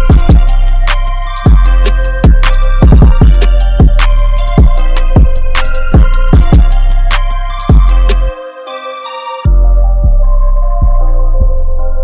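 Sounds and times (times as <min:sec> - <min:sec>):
deep kick drum: 0:00.0 - 0:00.6, 0:01.5 - 0:06.9, 0:07.7 - 0:08.3, 0:09.5 - 0:11.8
electronic music beat: 0:00.0 - 0:12.0.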